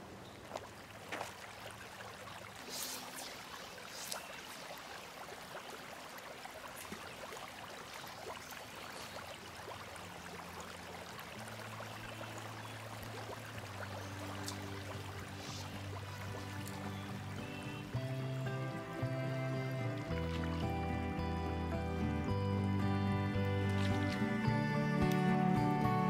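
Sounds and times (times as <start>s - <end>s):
soft hiss: 2.6s - 4.8s
low sustained music tones: 6.7s - 26.0s.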